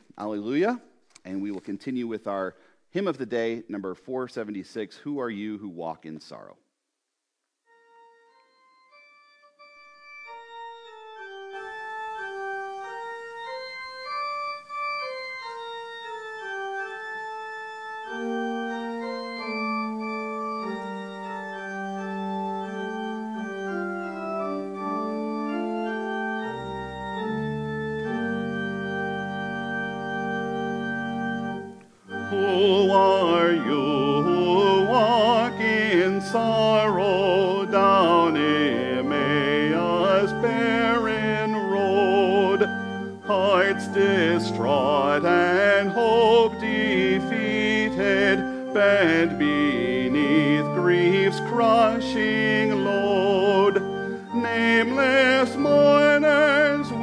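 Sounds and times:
church organ playing chords: 7.7 - 57.0
people singing: 32.3 - 42.6.

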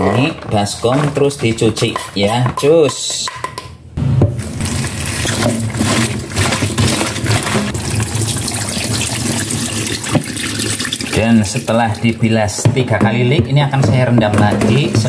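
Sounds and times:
water poured into steel sink: 4.4 - 11.7
water splashing in plastic bowl: 4.4 - 12.1.

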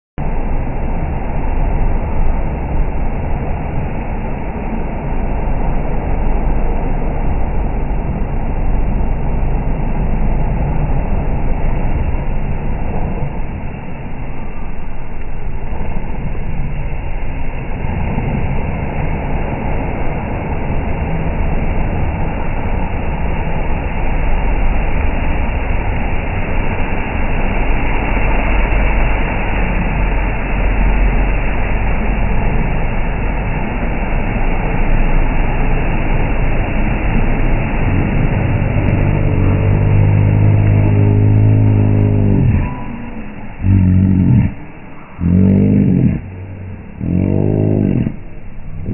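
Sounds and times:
engine running hard slowed down: 0.2 - 48.9
tyres churning mud: 25.9 - 48.9.

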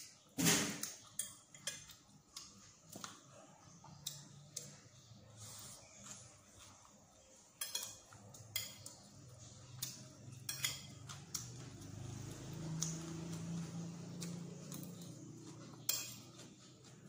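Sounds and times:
low steady hum: 0.8 - 17.0
salad chewing: 0.8 - 17.0
cutlery clinking on a plate: 7.6 - 9.1, 9.8 - 11.6, 15.7 - 16.6.

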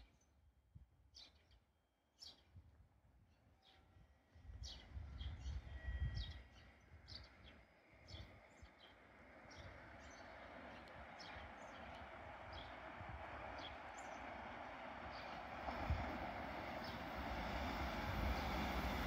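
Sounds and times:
freight train approaching: 8.3 - 19.0.

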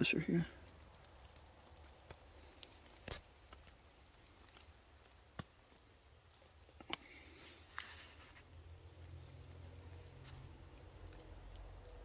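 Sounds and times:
cloth rustling: 7.3 - 9.2.

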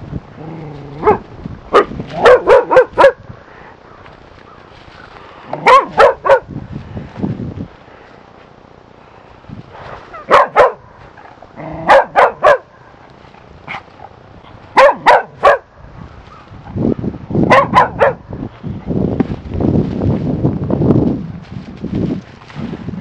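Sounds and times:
puppy barking: 1.0 - 3.2, 5.6 - 6.5, 10.2 - 10.9, 11.8 - 12.7, 14.8 - 15.7, 17.5 - 18.2.

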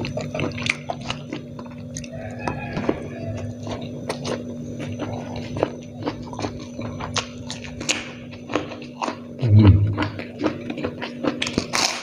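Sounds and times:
chewing and crunching: 0.0 - 12.0
person humming mm: 9.4 - 10.2
wet mouth sounds: 9.4 - 10.6.

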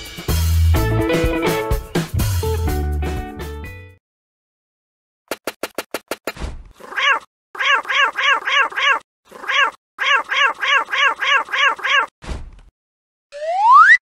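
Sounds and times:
cartoon cat voice babbling: 6.8 - 12.1.

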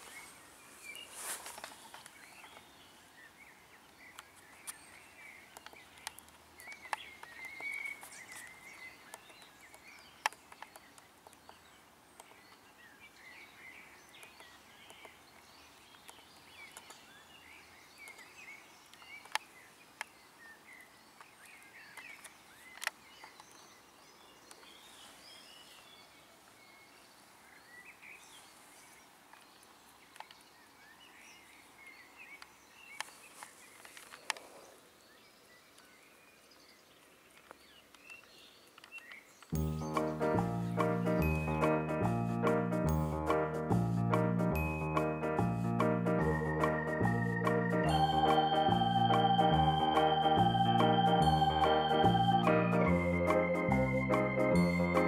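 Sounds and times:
brief rustle: 0.0 - 2.7, 33.0 - 34.7
small birds chirping: 0.0 - 55.0.

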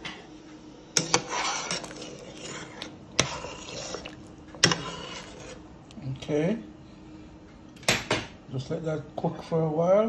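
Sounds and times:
pot bubbling: 1.0 - 5.9.

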